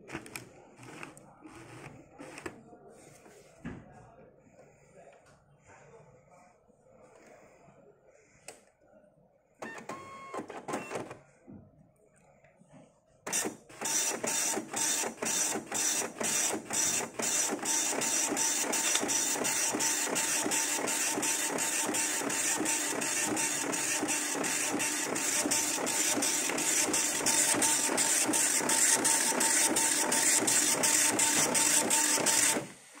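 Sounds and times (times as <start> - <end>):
printer whirring: 0.0 - 3.1, 9.6 - 11.2, 13.3 - 33.0
paper feed whine: 0.0 - 3.3, 13.3 - 33.0.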